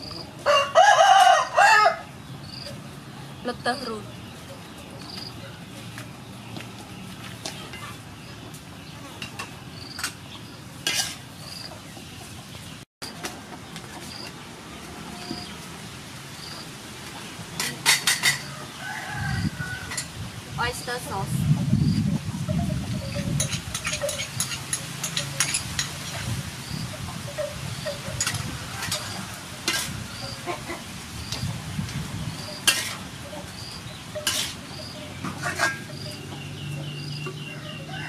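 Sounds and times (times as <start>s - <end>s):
utensil scraping frying pan: 10.8s - 11.4s, 22.8s - 26.3s, 27.0s - 30.8s, 32.4s - 36.2s
utensil clicking and scraping pan: 32.6s - 33.0s, 34.2s - 34.6s.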